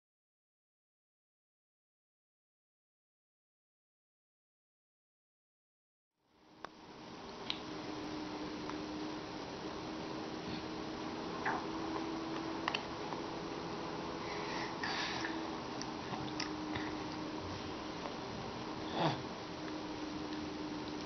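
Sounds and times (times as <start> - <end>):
faint steady hum: 6.2 - 21.0
baby sucking and mouthing: 11.4 - 13.2, 14.3 - 17.3
baby sniffing: 14.2 - 15.4.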